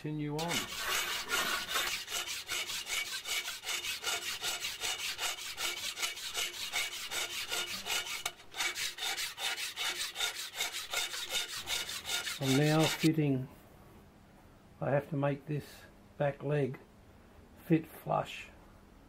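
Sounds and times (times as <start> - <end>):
hand tool rubbing on metal: 0.3 - 13.1.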